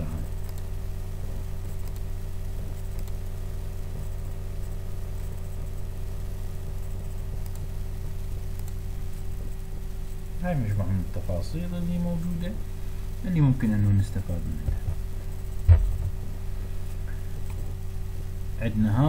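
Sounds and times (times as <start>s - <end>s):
low electrical hum: 0.0s - 19.0s
faint clicks: 0.4s - 0.7s, 1.8s - 2.1s, 2.9s - 3.2s, 7.4s - 7.7s, 8.5s - 8.8s.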